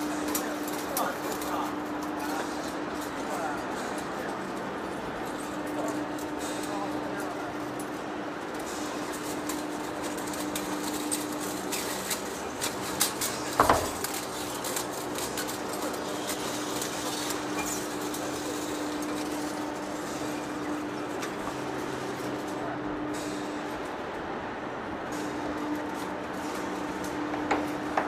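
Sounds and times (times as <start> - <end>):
metal cutting noise: 8.6 - 23.7.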